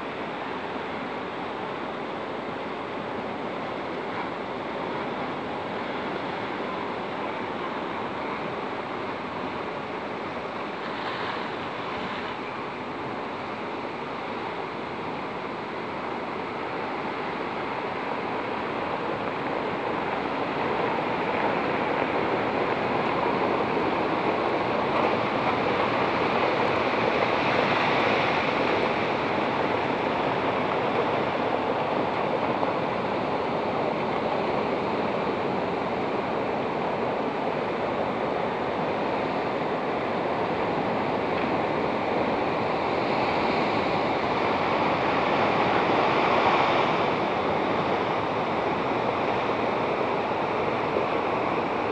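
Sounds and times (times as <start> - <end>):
sea waves breaking on rocks: 14.8 - 51.9.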